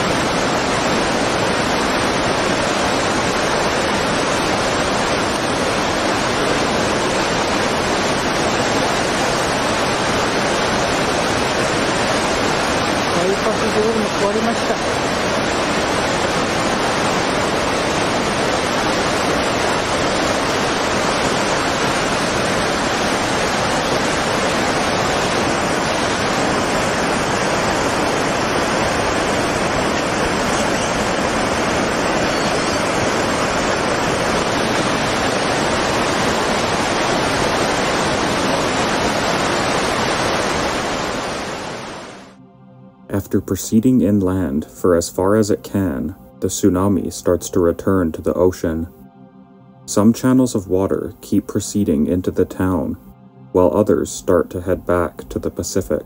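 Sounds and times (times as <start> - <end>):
floodwater rushing: 0.0 - 42.4, 49.9 - 56.0
faint high steady tone: 29.8 - 33.8, 42.4 - 56.0.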